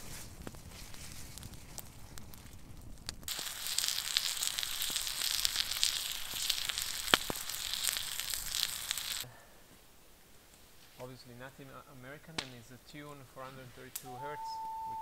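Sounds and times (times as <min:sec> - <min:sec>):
steaks sizzling in a frying pan: 0:03.3 - 0:09.2.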